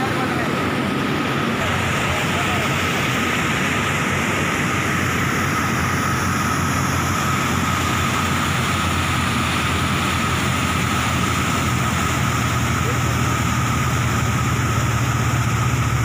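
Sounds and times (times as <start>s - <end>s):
floodwater rushing and churning: 0.0s - 16.0s.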